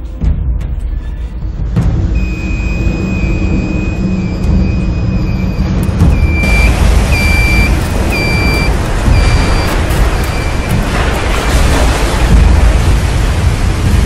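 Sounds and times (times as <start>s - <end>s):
heavy wind: 0.0s - 14.0s
low rumble: 0.0s - 14.0s
waves breaking against hull: 1.7s - 14.0s
high beeps: 2.2s - 10.8s.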